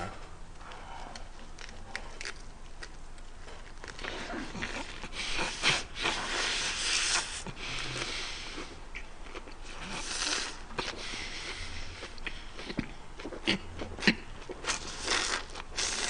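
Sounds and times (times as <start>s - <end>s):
wet crunching chewing: 1.1s - 5.8s.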